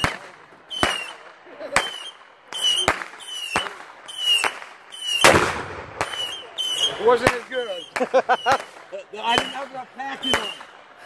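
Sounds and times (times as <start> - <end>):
firework bangs: 0.0 - 10.9
falling whistle: 0.7 - 1.2, 1.8 - 5.4, 6.0 - 8.8, 9.4 - 10.7
deep firework boom: 5.2 - 6.3.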